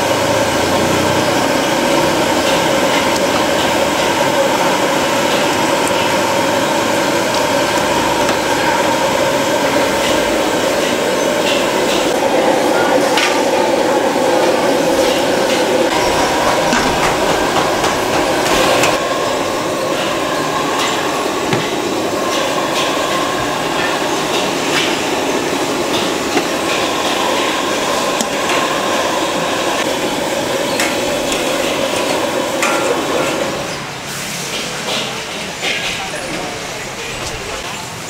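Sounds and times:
loud rushing noise: 0.0s - 32.6s
metal utensils clanking: 14.4s - 27.6s.

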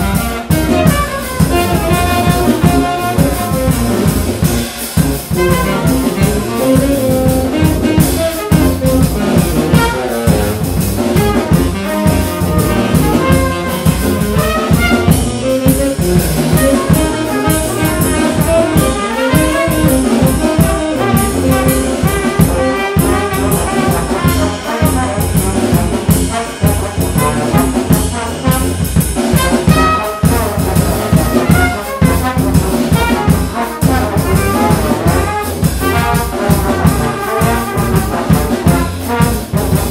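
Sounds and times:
brass ensemble playing: 0.0s - 39.9s
drum kit beat: 0.0s - 39.9s.

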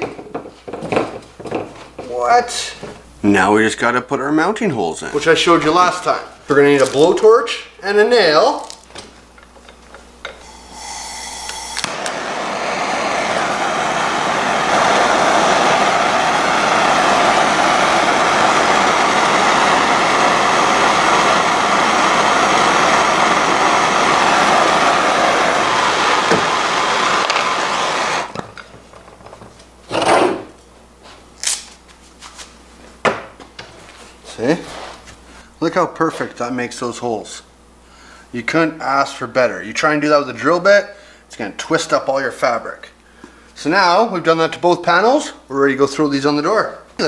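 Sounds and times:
blowtorch hissing: 10.2s - 28.6s.

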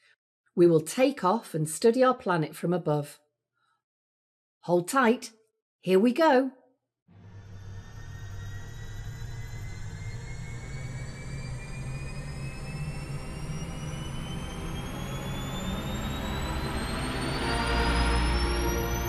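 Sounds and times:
high rising whine: 7.2s - 19.0s.

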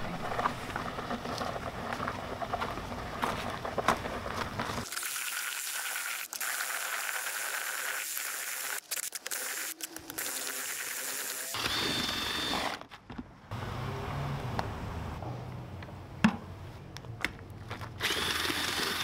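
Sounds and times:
paddle mixer in slurry: 4.7s - 12.8s, 18.0s - 19.0s
drill whining: 9.3s - 12.8s, 18.0s - 19.0s.

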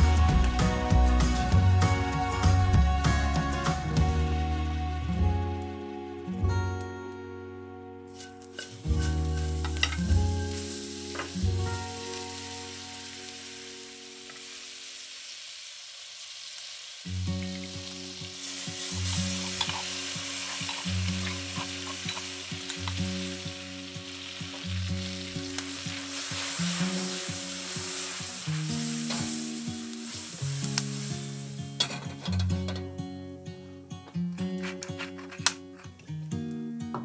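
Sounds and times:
butter sizzling in a wok: 8.1s - 32.8s.

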